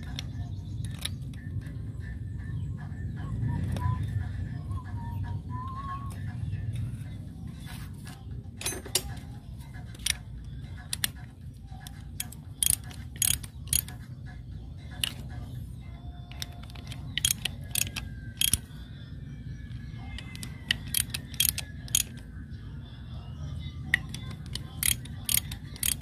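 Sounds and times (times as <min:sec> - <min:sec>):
ratchet wrench clicking: 0:09.8 - 0:14.1, 0:14.9 - 0:15.4, 0:16.3 - 0:18.8, 0:20.2 - 0:22.2, 0:23.9 - 0:26.0.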